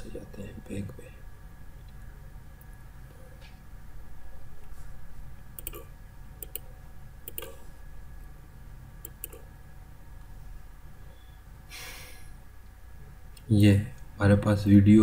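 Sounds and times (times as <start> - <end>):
steady low hum: 0.0 - 15.0
computer mouse clicking: 5.6 - 5.8, 6.4 - 7.6, 9.0 - 9.5.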